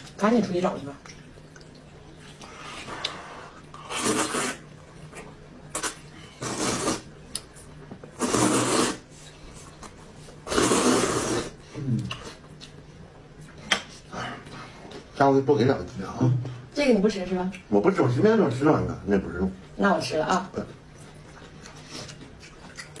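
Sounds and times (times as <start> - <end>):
man slurping noodles: 2.7 - 4.6, 5.8 - 7.1, 8.2 - 9.1, 10.4 - 11.6.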